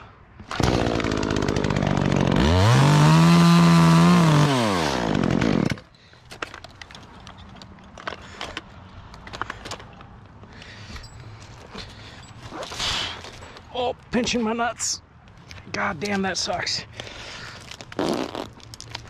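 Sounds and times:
chainsaw revving: 0:00.5 - 0:05.8.

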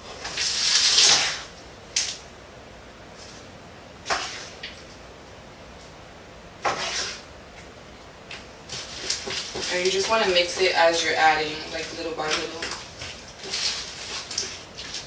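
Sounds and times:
utensil scraping a pan: 0:06.6 - 0:07.3, 0:08.7 - 0:15.0.

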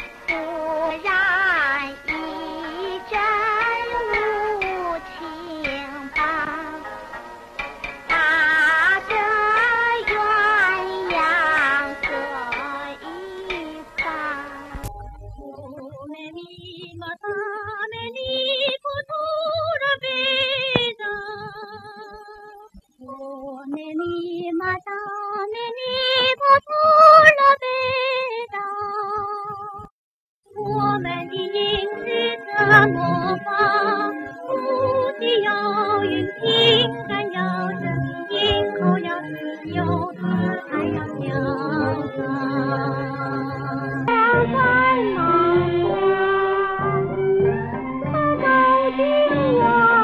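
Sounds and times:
woman singing with vibrato: 0:00.0 - 0:07.0, 0:08.1 - 0:14.8, 0:15.4 - 0:29.9, 0:30.6 - 0:50.0
instrumental accompaniment: 0:00.0 - 0:17.0, 0:30.7 - 0:50.0.

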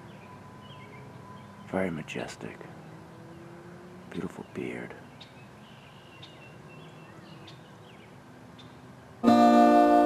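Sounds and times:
guitar chord ringing: 0:09.2 - 0:10.0.

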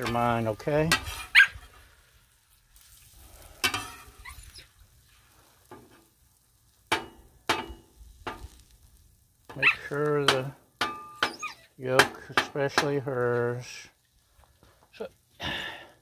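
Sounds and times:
steel spatula scraping griddle: 0:00.0 - 0:02.1, 0:02.7 - 0:06.1
eggs sizzling on griddle: 0:00.0 - 0:16.0
spatula clanking on steel: 0:06.9 - 0:08.5.

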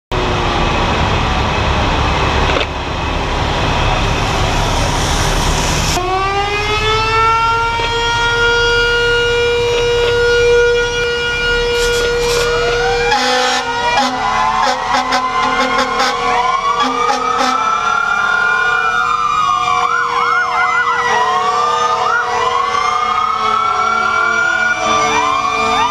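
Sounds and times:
fire engine siren wailing: 0:00.1 - 0:25.9
steady rushing noise: 0:00.2 - 0:06.0
horn-like tones: 0:08.0 - 0:18.9.

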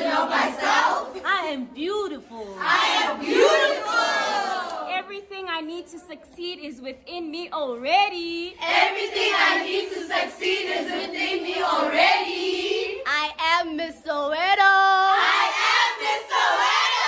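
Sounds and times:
high voices singing together: 0:00.0 - 0:01.3, 0:02.5 - 0:04.9, 0:08.5 - 0:13.2, 0:14.8 - 0:17.0.

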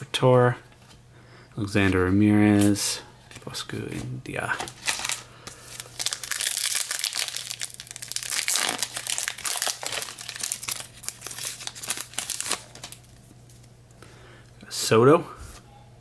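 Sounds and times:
foil wrapper crinkling and tearing: 0:04.6 - 0:13.7.

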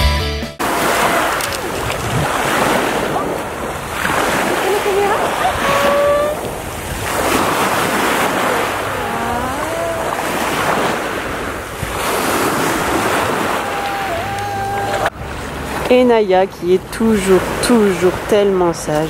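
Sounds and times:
wind on microphone: 0:00.6 - 0:15.9
small waves washing in shallows: 0:00.6 - 0:16.2, 0:16.8 - 0:18.6
wavering voice: 0:04.4 - 0:06.6, 0:08.1 - 0:11.1, 0:13.3 - 0:15.2.

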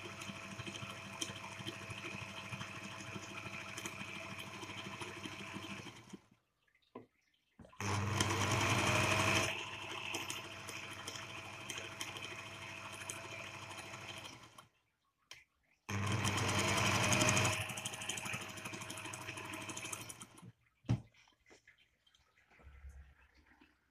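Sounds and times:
sewing machine stitching leather: 0:00.0 - 0:06.2, 0:07.8 - 0:14.7, 0:15.9 - 0:20.5.

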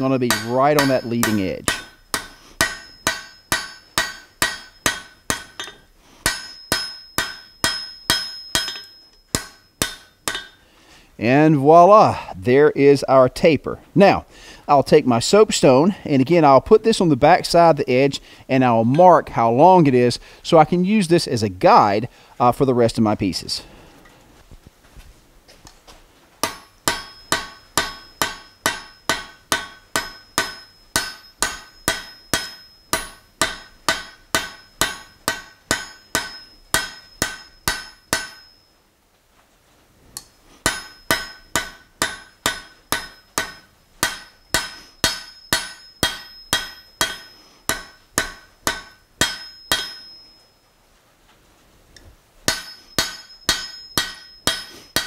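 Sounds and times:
hammer striking steel on anvil: 0:00.0 - 0:10.6, 0:26.4 - 0:38.7, 0:40.2 - 0:50.5, 0:52.5 - 0:55.0.

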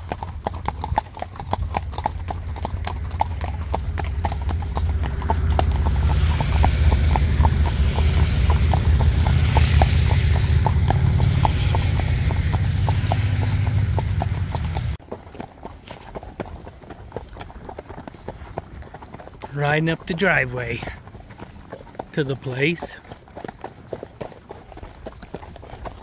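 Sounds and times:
hooves clip-clopping on asphalt: 0:00.0 - 0:26.0
low rushing noise: 0:02.2 - 0:15.0.

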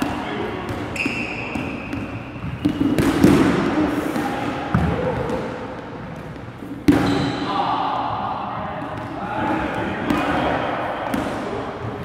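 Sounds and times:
balls bouncing on wooden floor: 0:00.0 - 0:07.3.

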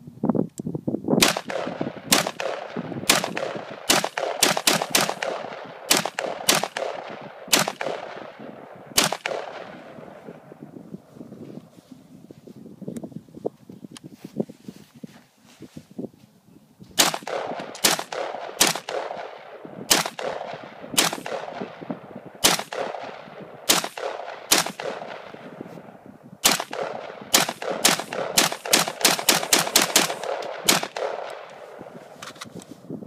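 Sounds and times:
rifle shots echoing: 0:01.2 - 0:11.0, 0:17.0 - 0:32.4.

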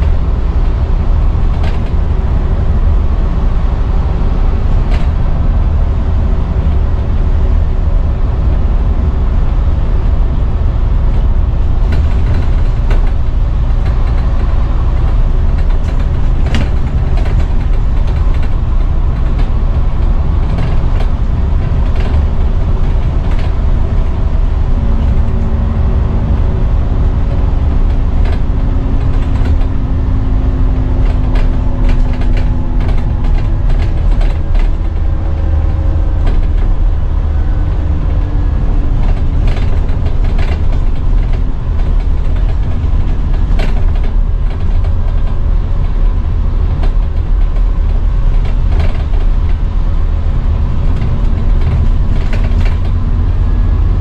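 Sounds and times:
steady drone: 0:00.0 - 0:43.5
bus engine and road rumble: 0:00.0 - 0:54.0
interior rattles and clicks: 0:00.0 - 0:54.0.

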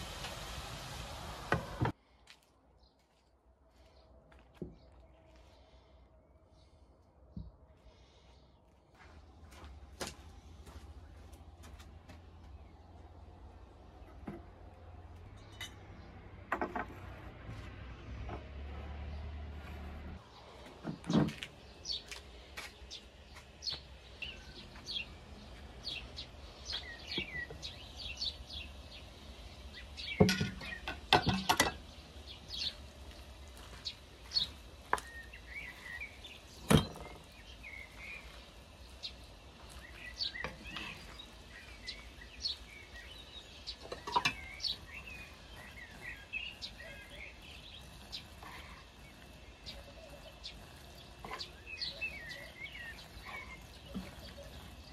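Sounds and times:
small birds chirping: 0:17.6 - 0:54.9
cookware knocking and clinking: 0:30.2 - 0:31.8.

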